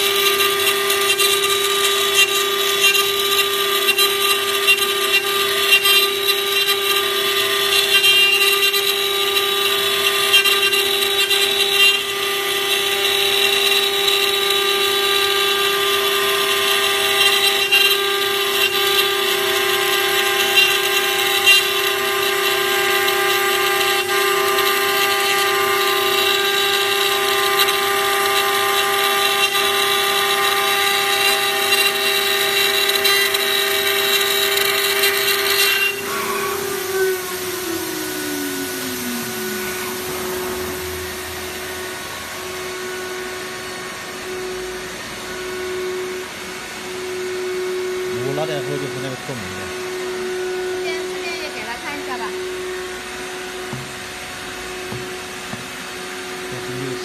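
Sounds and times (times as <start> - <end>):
router spindle milling plastic: 0.0 - 45.3.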